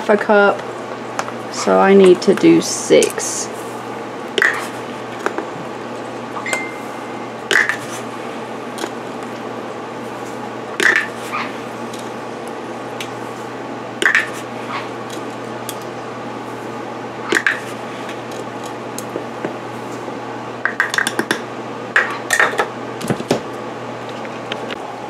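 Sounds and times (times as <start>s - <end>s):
steady background hum: 0.0s - 25.0s.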